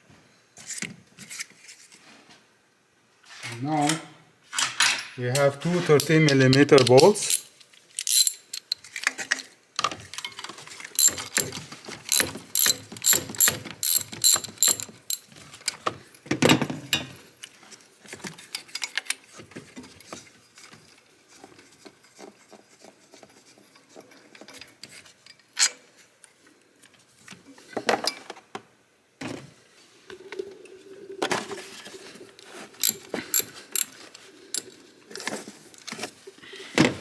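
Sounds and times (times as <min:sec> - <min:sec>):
tool clinks: 0:06.5 - 0:08.8, 0:11.0 - 0:15.3
socket ratchet clicking: 0:12.1 - 0:15.2, 0:32.8 - 0:33.9.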